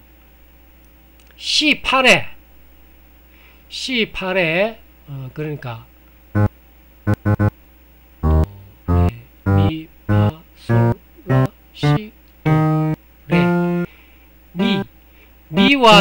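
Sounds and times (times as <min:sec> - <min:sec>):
piano notes: 0:07.1 - 0:07.5, 0:08.2 - 0:11.5.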